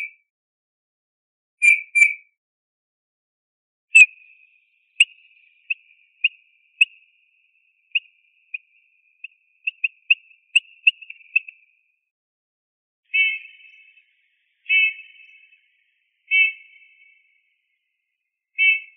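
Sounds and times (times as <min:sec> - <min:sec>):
bird piping notes: 0:04.0 - 0:11.8, 0:13.1 - 0:17.5, 0:18.6 - 0:18.9.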